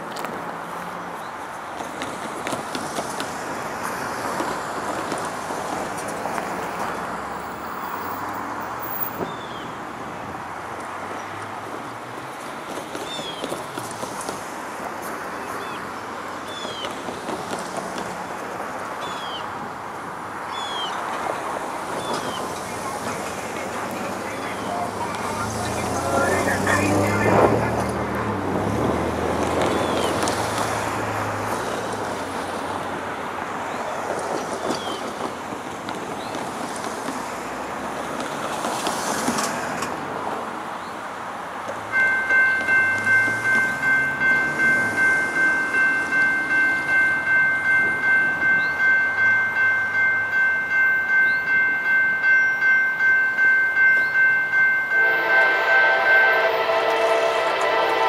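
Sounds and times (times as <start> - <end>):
freight train rumbling on rails: 0.0 - 58.0
crossing warning bell ringing: 21.9 - 32.4, 41.8 - 58.0
locomotive horn: 54.9 - 58.0.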